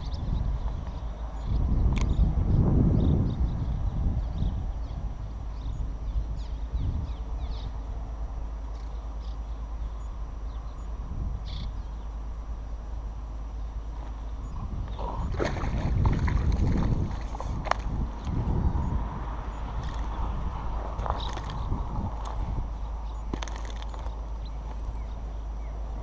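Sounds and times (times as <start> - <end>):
wind rumbling on microphone: 0.0 - 26.0.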